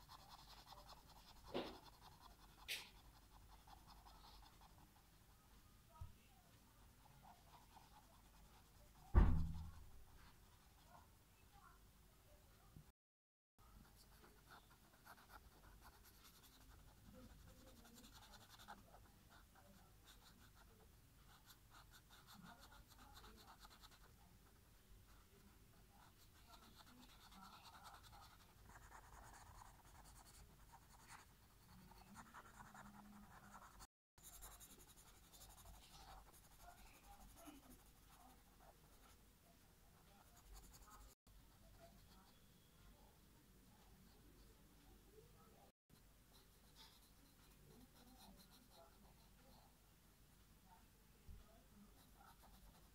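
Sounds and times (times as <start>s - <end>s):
marker scratching on paper: 0.0s - 5.1s, 7.0s - 11.0s, 13.8s - 24.2s, 25.1s - 39.2s, 40.0s - 41.2s, 46.3s - 49.6s, 51.8s - 52.9s.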